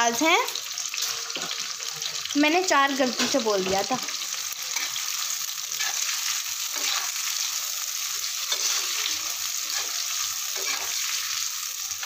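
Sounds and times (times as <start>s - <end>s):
onions sizzling in oil: 0.0s - 12.0s
spatula scraping pan: 5.7s - 7.5s, 8.1s - 11.4s.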